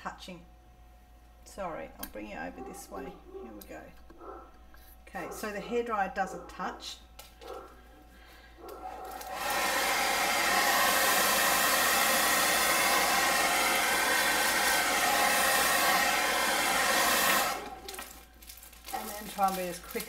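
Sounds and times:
hair dryer blowing: 8.8s - 18.3s.

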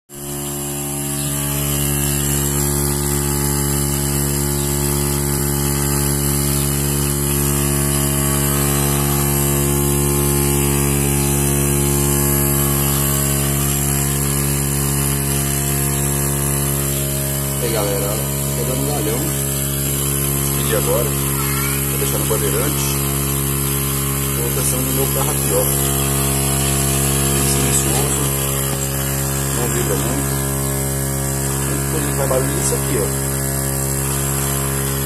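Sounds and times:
air compressor running: 0.0s - 35.0s.

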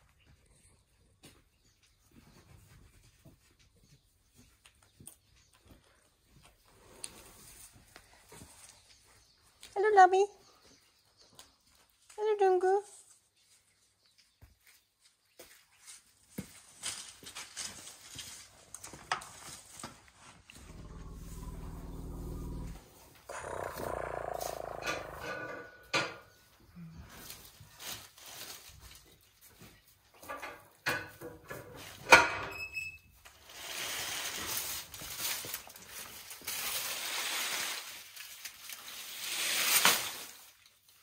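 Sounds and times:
leafy branches rustling: 27.1s - 29.4s, 33.3s - 41.0s.

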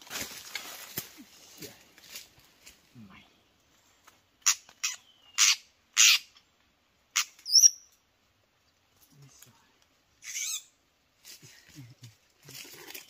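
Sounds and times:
bird calling and whistling: 4.4s - 6.4s, 7.2s - 7.9s.

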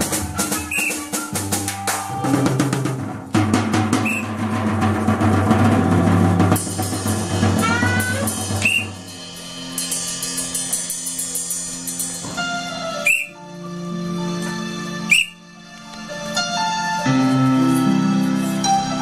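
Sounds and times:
dense drum beat music: 0.0s - 12.9s
whistle-like chirps: 0.4s - 1.2s, 4.0s - 4.3s, 8.6s - 9.0s, 13.0s - 13.4s, 15.1s - 15.4s.

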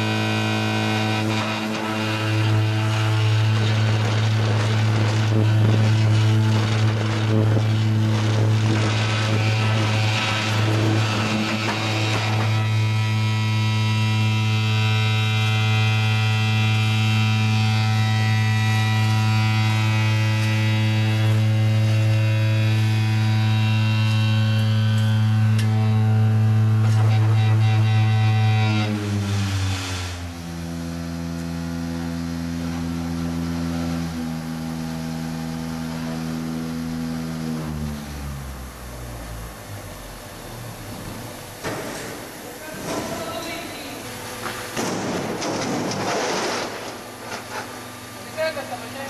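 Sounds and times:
concrete machine humming: 0.0s - 49.0s
gritty rattle of concrete filling moulds: 1.1s - 13.1s, 40.9s - 49.0s.

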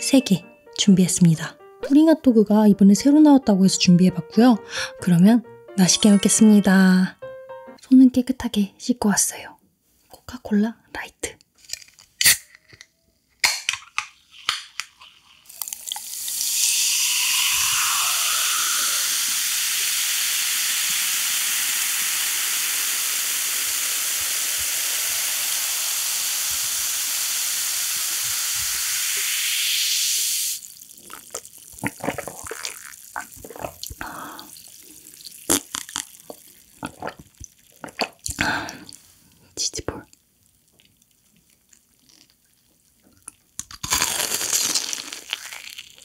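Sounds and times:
can clicking open: 11.7s - 14.9s
cola fizzing over ice: 14.2s - 39.4s
person swallowing: 31.0s - 39.0s.

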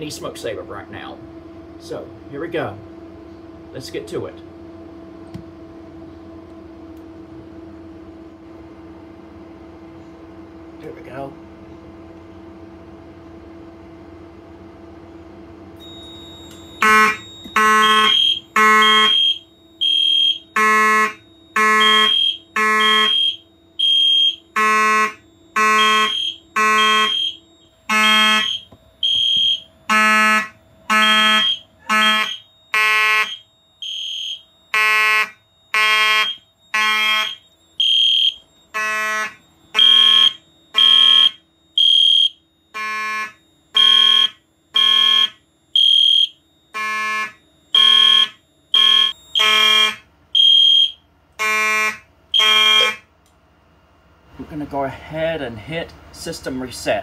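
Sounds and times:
buzzing fire alarm horn: 15.7s - 53.2s
high electronic alarm tone: 15.8s - 53.1s.

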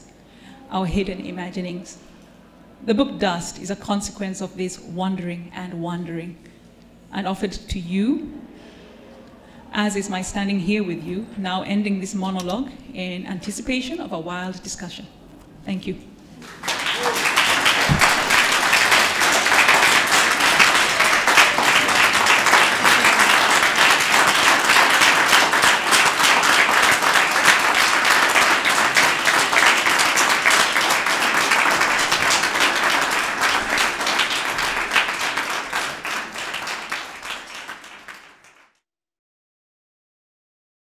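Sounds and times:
audience applauding: 16.4s - 38.8s.

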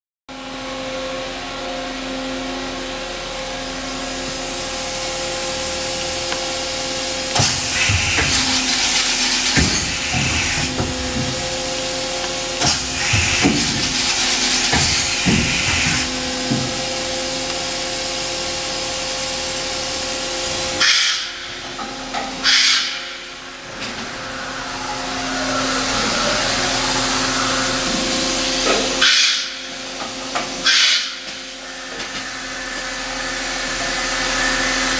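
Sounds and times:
machine humming: 0.3s - 34.9s
pneumatic hissing rushes: 7.3s - 16.9s, 20.4s - 34.9s.

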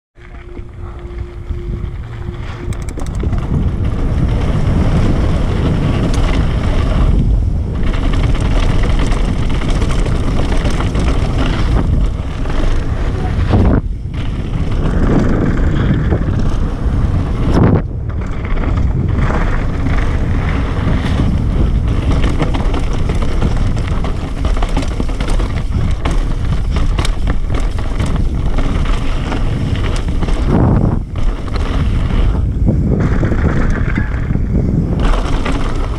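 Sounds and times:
mountain bike rattling: 0.2s - 35.9s
wind buffeting microphone: 0.2s - 35.9s.

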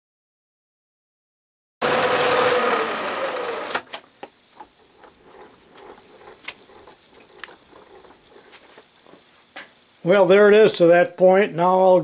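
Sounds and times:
milling machine cutting metal: 1.8s - 3.9s.

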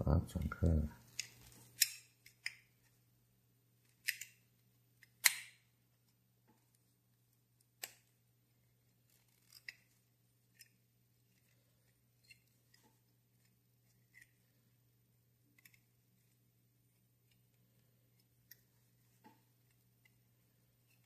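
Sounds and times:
pliers clicking on metal: 1.1s - 2.6s, 4.0s - 4.4s, 5.1s - 5.6s
pliers scraping metal: 1.1s - 2.6s, 9.2s - 9.9s.

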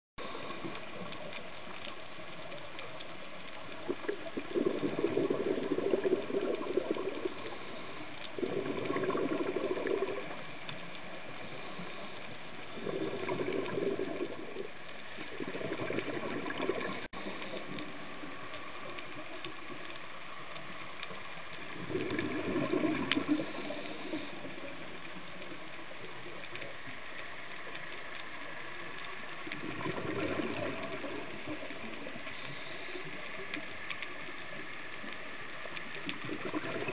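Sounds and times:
faint underwater hiss: 0.2s - 36.9s
regulator bubbling underwater: 3.4s - 27.6s, 28.3s - 36.9s.

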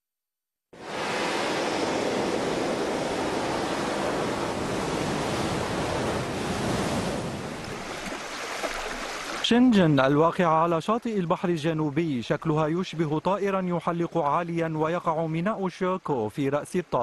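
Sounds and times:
ocean waves breaking: 0.8s - 10.2s.

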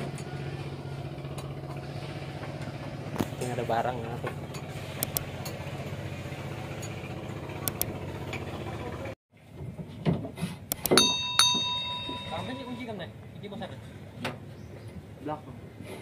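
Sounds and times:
engine idling: 0.0s - 9.2s
metal clinks and knocks: 10.9s - 13.0s
ringing metallic strike: 11.0s - 13.1s.

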